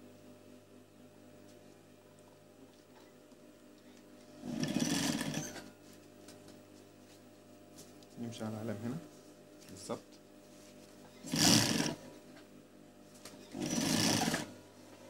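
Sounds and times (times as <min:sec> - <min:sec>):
sewing machine stitching: 0:04.4 - 0:05.7, 0:11.2 - 0:12.0, 0:13.4 - 0:14.6.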